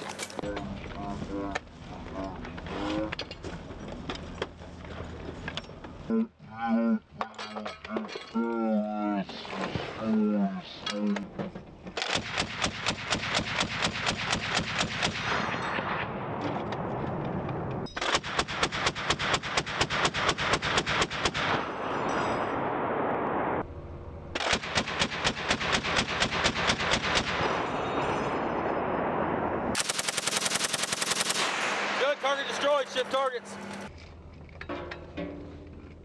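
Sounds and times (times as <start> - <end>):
machine gun firing bursts: 12.0 - 15.3, 18.0 - 21.5, 24.4 - 27.4, 29.8 - 33.1.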